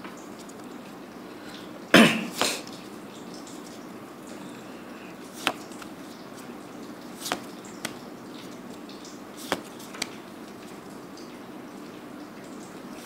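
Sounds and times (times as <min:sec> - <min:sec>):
playing cards snapping: 0:05.4 - 0:05.9, 0:07.2 - 0:08.0, 0:09.4 - 0:10.2.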